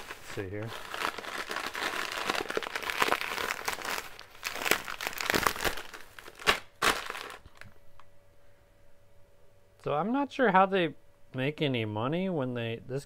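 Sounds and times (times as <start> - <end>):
candy packaging crackling: 0.0 - 7.8
plastic bag crinkling and rustling: 0.0 - 7.8.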